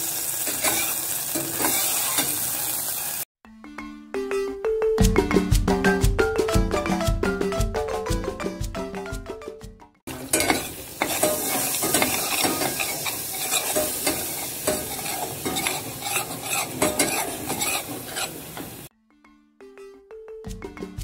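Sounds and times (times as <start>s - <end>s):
butter and flour sizzling: 0.0s - 3.3s, 10.1s - 18.9s
metal spoon scraping pan: 0.5s - 2.4s, 10.1s - 18.9s
marimba tune: 3.4s - 10.0s, 18.9s - 21.0s.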